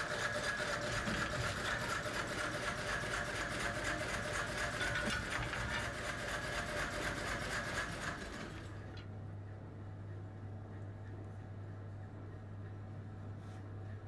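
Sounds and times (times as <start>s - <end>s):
workshop machine clattering: 0.0s - 9.0s
low steady hum: 8.6s - 14.0s.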